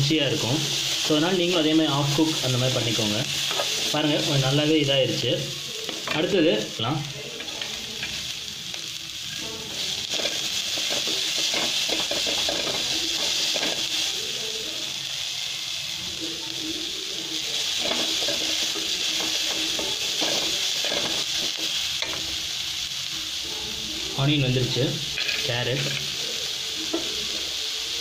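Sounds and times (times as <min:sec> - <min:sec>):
vegetables sizzling in oil: 0:00.0 - 0:28.0
spatula scraping and tapping pan: 0:10.1 - 0:13.8.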